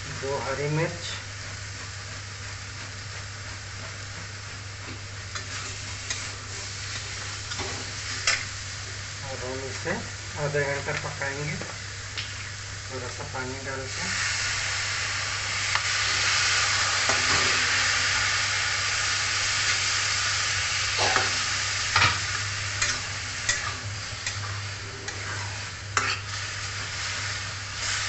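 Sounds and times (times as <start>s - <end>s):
food hissing and sizzling: 0.0s - 28.0s
metal spatula scraping pan: 22.8s - 26.9s.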